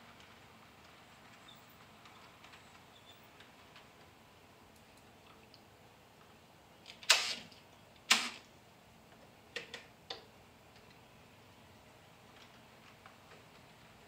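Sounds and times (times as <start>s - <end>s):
sharp clicks: 6.9s - 8.5s.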